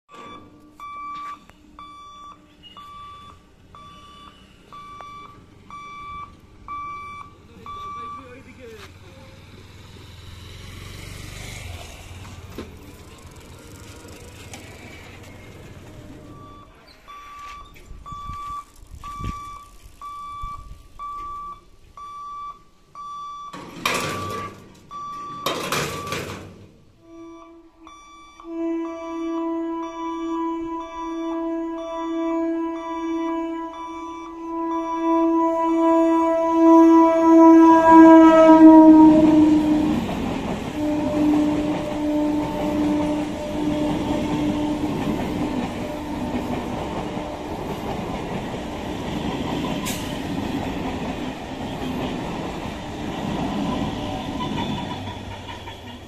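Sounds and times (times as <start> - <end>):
level crossing warning beeps: 0.1 - 8.8, 15.5 - 26.4, 27.0 - 36.8.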